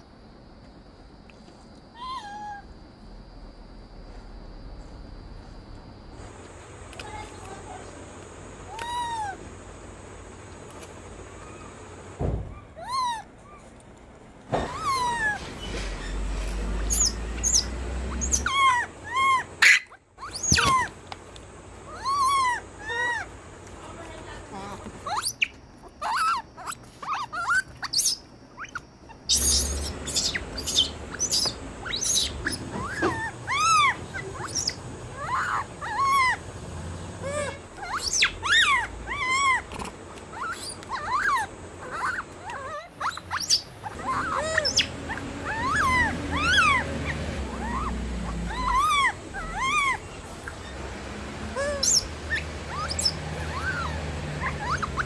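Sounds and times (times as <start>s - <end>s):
animal chirping calls: 8.6s - 9.4s, 12.5s - 13.6s, 14.6s - 20.9s, 21.8s - 23.4s, 24.5s - 36.5s, 37.2s - 55.0s.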